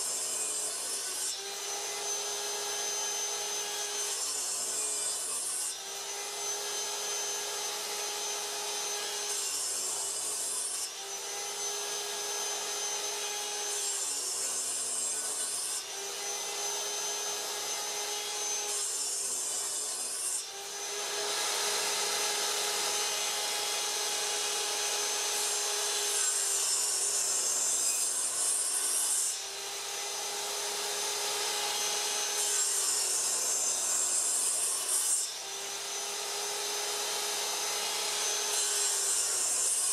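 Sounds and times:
miter saw motor whine: 20.4 - 28.1.

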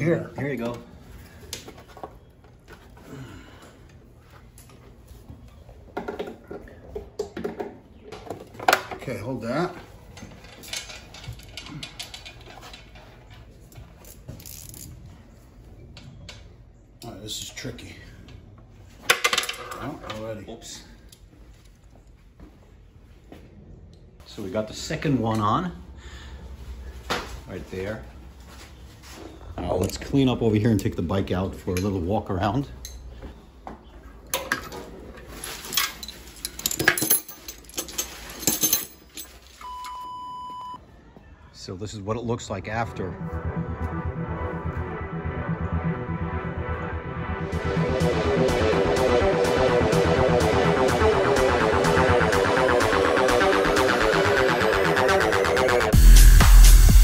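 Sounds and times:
metal tools clattering: 10.0 - 14.9, 34.3 - 39.7
electronic beep: 39.6 - 40.8.

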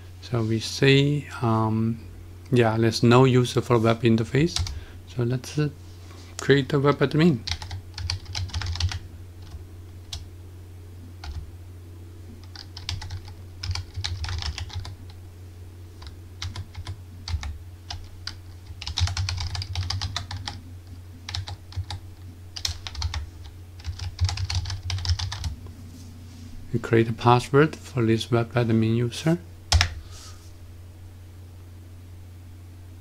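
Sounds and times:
steady low hum: 0.0 - 33.0
computer keyboard typing: 4.6 - 4.8, 7.5 - 10.2, 11.2 - 11.4, 12.4 - 15.0, 16.0 - 20.6, 21.3 - 22.0, 22.6 - 23.2, 23.8 - 25.5, 29.7 - 30.0.

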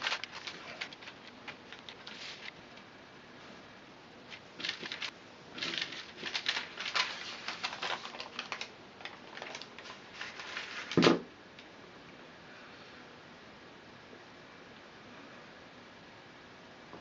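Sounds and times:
paper and straw crackling: 0.0 - 2.6, 4.3 - 11.0.

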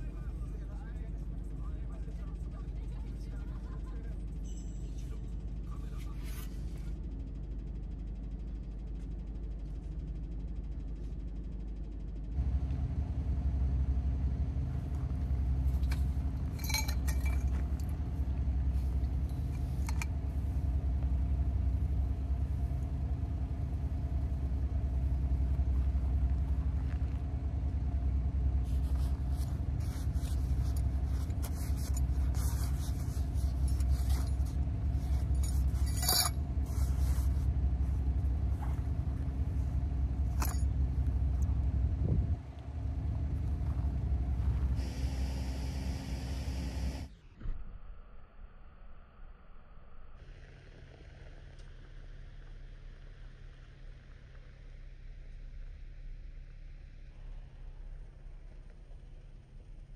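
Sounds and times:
steady low rumble: 0.0 - 59.9
tent poles clinking and rattling: 15.6 - 20.5, 28.8 - 37.4, 40.2 - 41.5.

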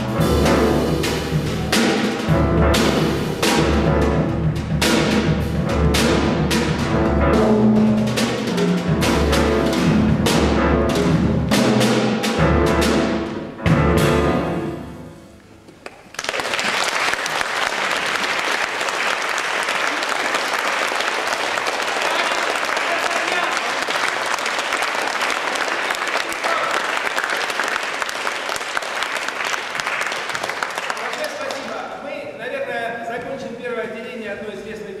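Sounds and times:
jazz trio playing: 0.0 - 15.5
audience applauding: 15.8 - 31.9.

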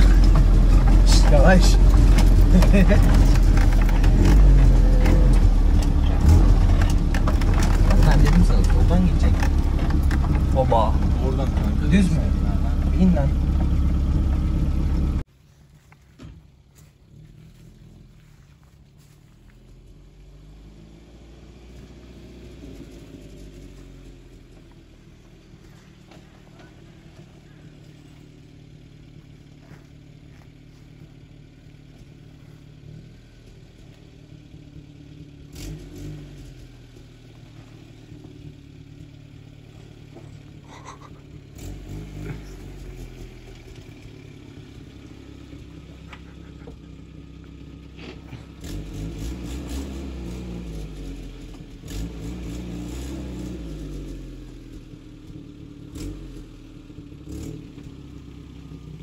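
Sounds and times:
knocks and rattles: 0.0 - 15.2
car engine labouring and revving: 0.0 - 59.0.

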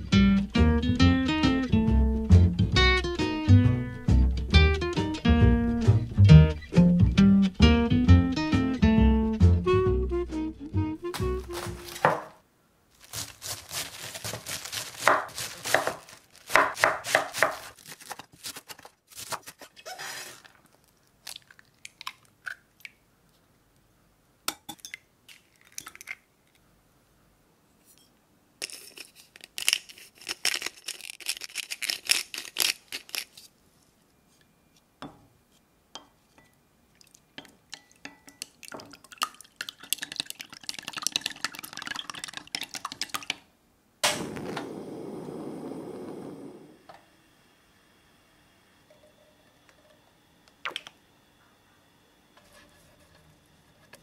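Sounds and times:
knife cutting cabbage on board: 11.2 - 12.3, 13.0 - 19.9
chopsticks beating eggs in glass: 39.2 - 43.3.

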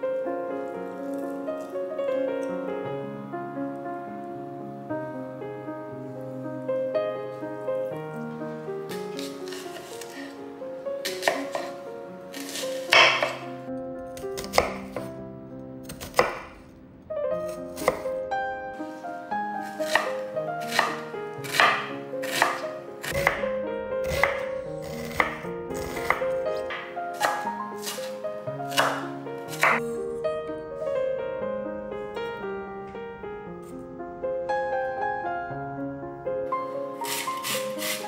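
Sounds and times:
soft background music: 0.0 - 38.0
knife chopping on wooden board: 8.9 - 10.3, 11.0 - 11.8, 12.4 - 13.4, 14.4 - 15.1, 15.9 - 16.6, 17.8 - 18.0, 19.7 - 23.4, 24.0 - 28.1, 28.7 - 29.8, 37.1 - 38.0.

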